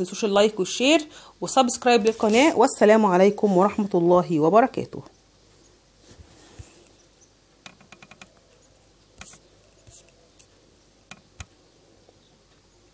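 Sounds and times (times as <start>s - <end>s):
fingers tapping touchscreen: 7.6s - 11.5s.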